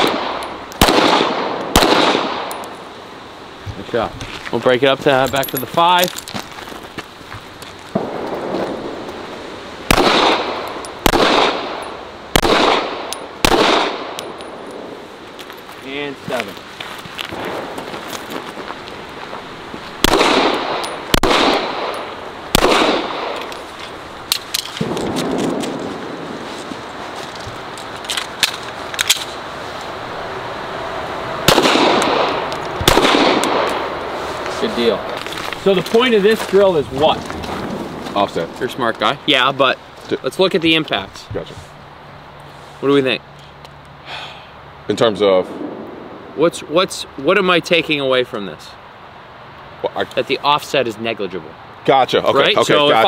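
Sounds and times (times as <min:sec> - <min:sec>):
handgun shots echoing: 0:09.9 - 0:14.8, 0:20.0 - 0:23.6, 0:31.5 - 0:33.8.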